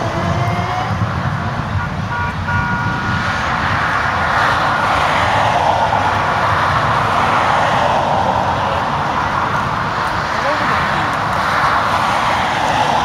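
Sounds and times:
car passing close: 3.0s - 13.0s.

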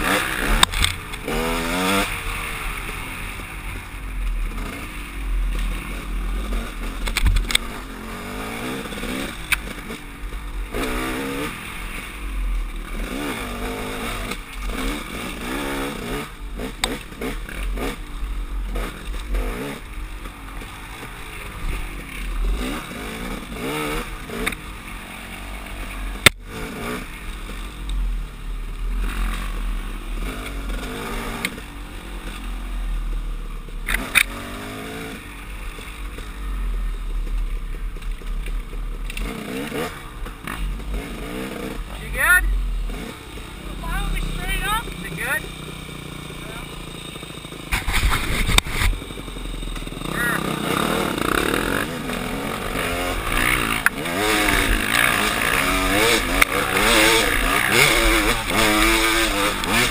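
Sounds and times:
dirt bike engine revving: 0.0s - 59.9s
bike clattering over roots: 47.6s - 49.1s.

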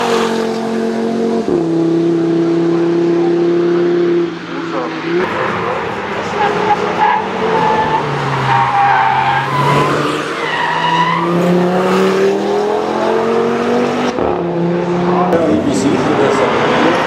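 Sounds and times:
car engine revving uphill: 0.0s - 17.0s.

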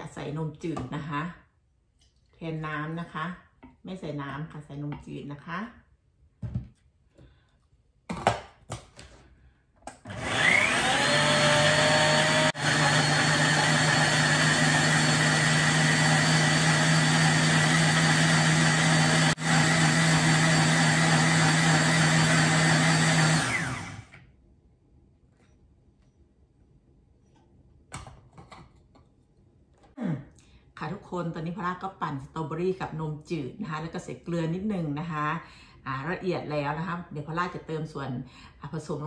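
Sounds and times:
blender motor whining: 9.9s - 24.2s.

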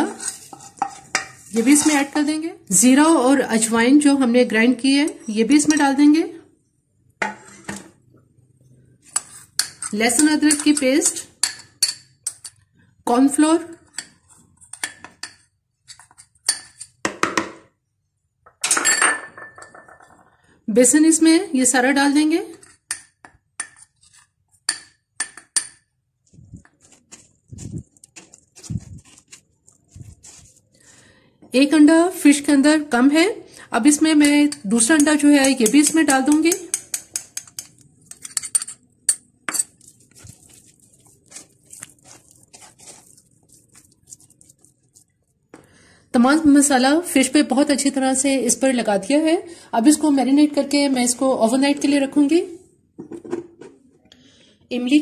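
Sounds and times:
spoon scraping glass bowl: 0.0s - 2.5s, 7.2s - 8.0s, 9.0s - 12.6s, 23.6s - 24.7s, 34.0s - 45.3s
spoon clinking on glass bowl: 34.2s - 39.8s
wet clicks of hand mixing: 39.2s - 45.5s.

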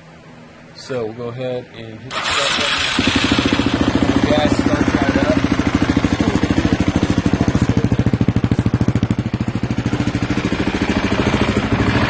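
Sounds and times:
motorcycle engine idling: 2.1s - 12.0s.

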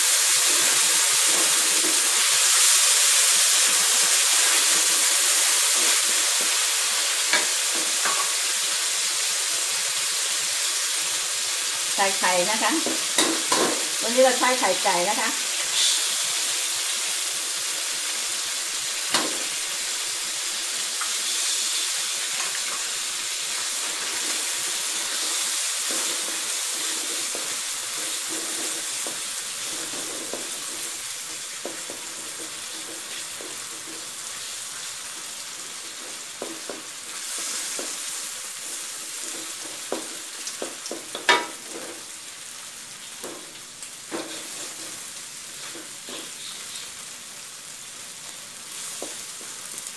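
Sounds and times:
food sizzling in hot oil: 0.0s - 49.9s
wooden spatula scraping wok: 0.3s - 3.7s, 23.5s - 42.2s, 44.1s - 46.7s.

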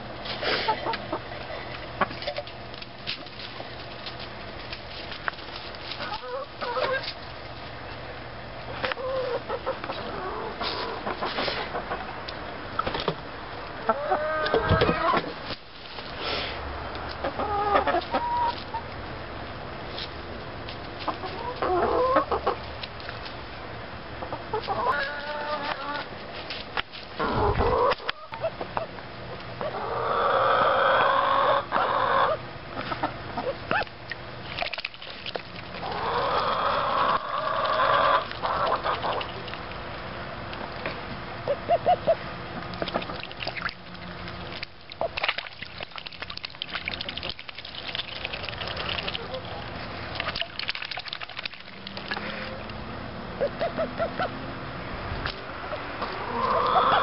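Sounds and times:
hens clucking: 0.3s - 2.6s, 5.9s - 7.2s, 8.7s - 12.9s, 13.8s - 15.3s, 17.1s - 19.0s, 21.0s - 22.7s, 24.2s - 26.1s, 27.2s - 33.9s, 35.8s - 39.7s, 40.9s - 50.6s, 53.4s - 54.4s, 55.3s - 57.0s.

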